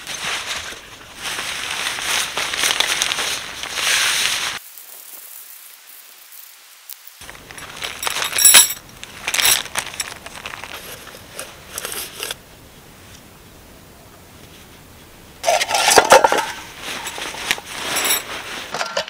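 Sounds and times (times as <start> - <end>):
plastic bag crinkling: 0.0 - 5.0, 7.2 - 12.4.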